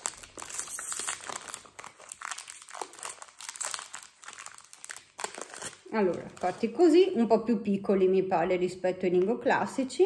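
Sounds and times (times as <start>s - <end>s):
plastic wrapper crinkling: 0.0s - 7.2s.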